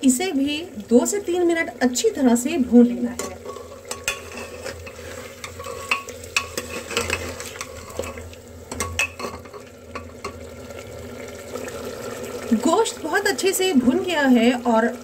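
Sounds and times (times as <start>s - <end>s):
meat sizzling in oil: 0.0s - 15.0s
steel ladle scraping pot: 3.1s - 10.4s.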